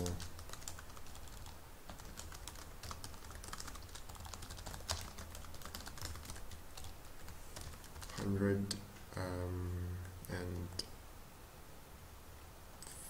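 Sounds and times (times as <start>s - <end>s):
keyboard typing: 0.0s - 8.8s.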